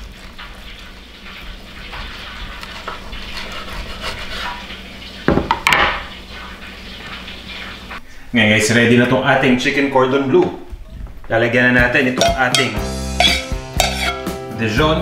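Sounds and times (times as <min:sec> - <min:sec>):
knife crunching through crispy crust: 0:02.4 - 0:04.6
scrape on cutting board: 0:02.6 - 0:04.6, 0:13.2 - 0:14.2
knocks on cutting board: 0:05.3 - 0:06.0.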